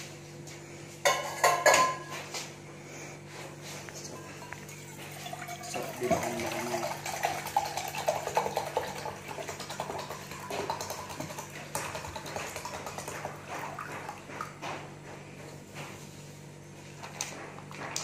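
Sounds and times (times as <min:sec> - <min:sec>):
water pouring into a mug: 0:04.6 - 0:13.8.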